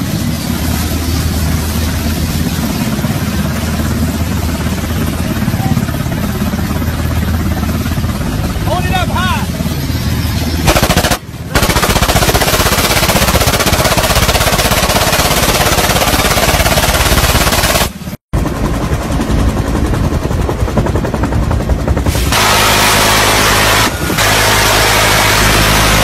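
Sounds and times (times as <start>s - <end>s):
engine running steadily: 0.0s - 26.0s
machine gun firing bursts: 10.6s - 18.0s.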